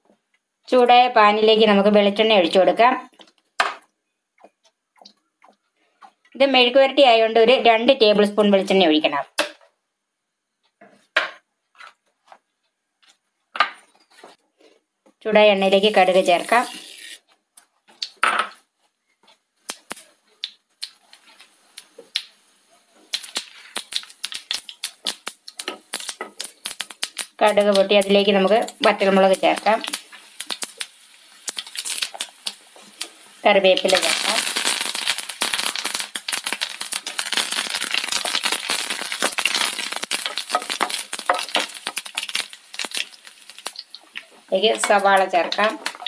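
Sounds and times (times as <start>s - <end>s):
oil sizzling: 15.4s - 17.3s, 19.6s - 46.0s
mustard seeds popping: 23.1s - 46.0s.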